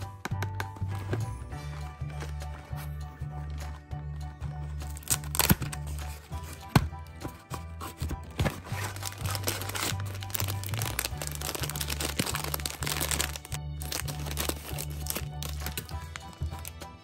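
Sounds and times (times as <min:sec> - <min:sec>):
background music with bass line: 0:00.0 - 0:17.0
plastic bag crinkling: 0:08.7 - 0:16.8.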